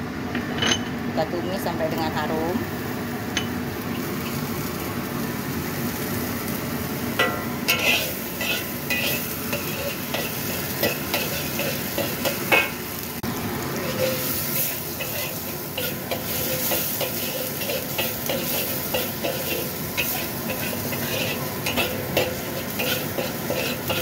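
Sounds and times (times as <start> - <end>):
garlic sizzling in hot oil: 2.2 - 24.0
spatula scraping a wok: 7.2 - 13.0, 13.8 - 24.0.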